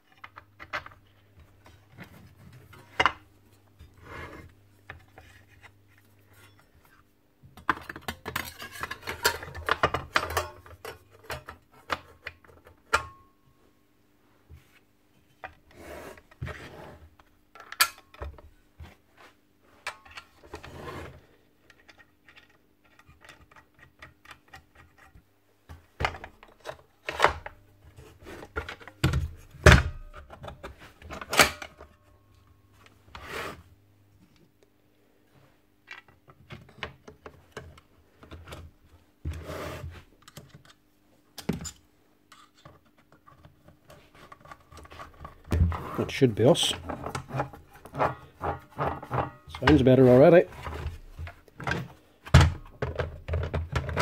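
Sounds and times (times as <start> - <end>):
plastic and metal parts knocking: 50.5 - 54.0.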